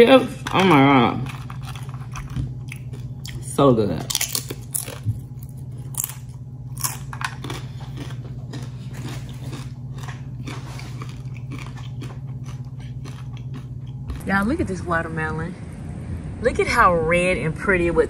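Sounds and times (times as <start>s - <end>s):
person chewing crunchy chips: 0.0s - 14.3s
steady low hum: 0.0s - 18.0s.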